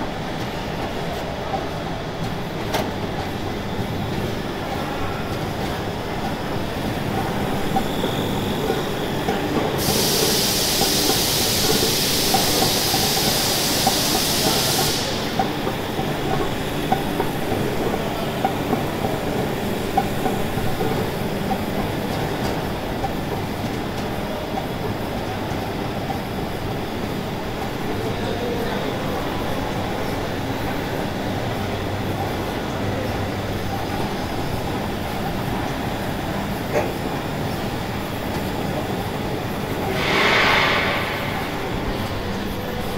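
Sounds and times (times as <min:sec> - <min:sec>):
loud hiss: 0:09.8 - 0:15.4, 0:39.9 - 0:42.8.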